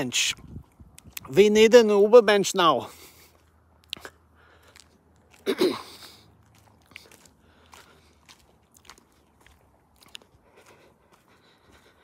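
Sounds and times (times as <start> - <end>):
footsteps on leaves: 4.4 - 12.0.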